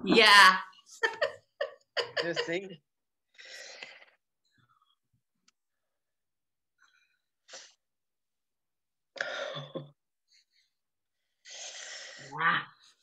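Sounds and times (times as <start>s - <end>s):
sniff-like breath: 11.4s - 12.3s.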